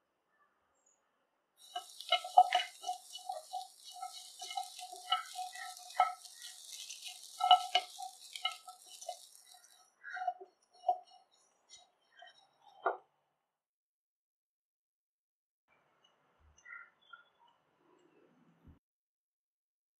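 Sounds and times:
spatula scraping in dry pan: 0:01.6 - 0:12.9.

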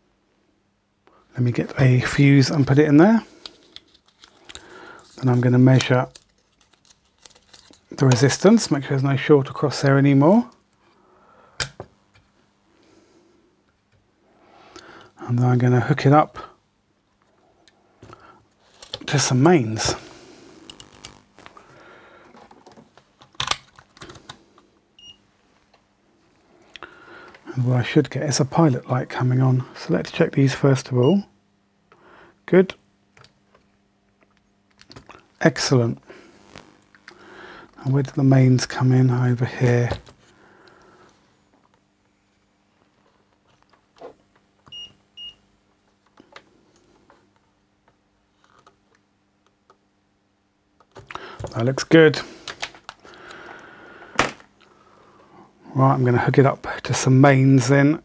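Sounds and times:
clicks and rustles of handling: 0:03.3 - 0:08.6, 0:17.2 - 0:19.2, 0:22.2 - 0:24.7.

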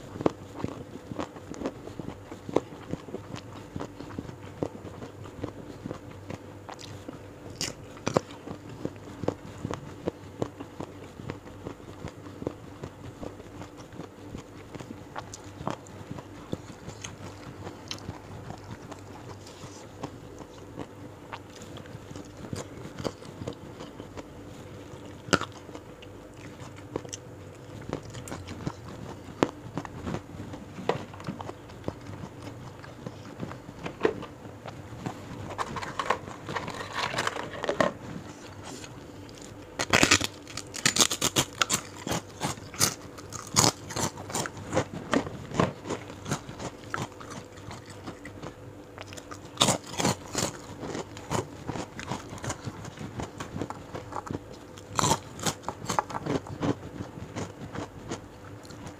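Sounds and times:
wet chewing clicks: 0:00.1 - 0:30.3, 0:38.6 - 0:58.9
loud crunching bites: 0:39.3 - 0:44.8, 0:49.1 - 0:52.7, 0:54.0 - 0:56.8.

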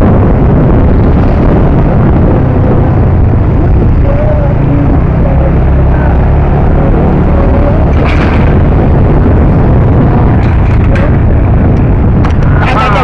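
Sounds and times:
motorcycle engine running: 0:00.0 - 0:13.0
wind buffeting microphone: 0:00.0 - 0:13.0.

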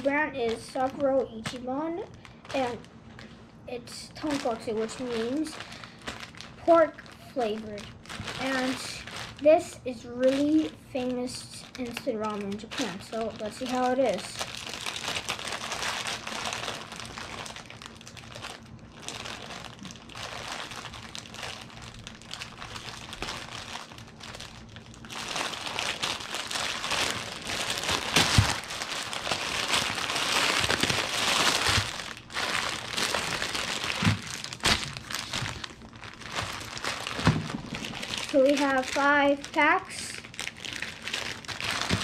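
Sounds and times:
plastic wrapper crinkling: 0:00.0 - 0:42.0
packets knocking on counter: 0:37.2 - 0:38.0.

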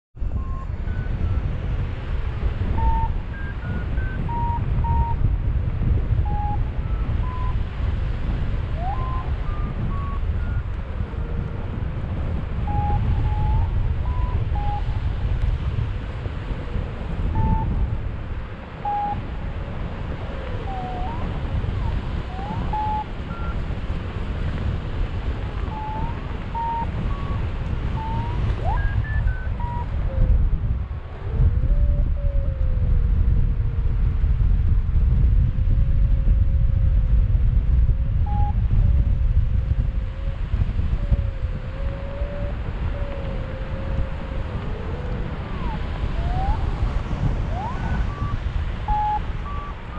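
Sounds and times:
wind buffeting microphone: 0:00.2 - 0:49.9
variometer short beeps: 0:06.2 - 0:07.6, 0:18.8 - 0:19.2, 0:22.4 - 0:23.6, 0:47.8 - 0:49.8.

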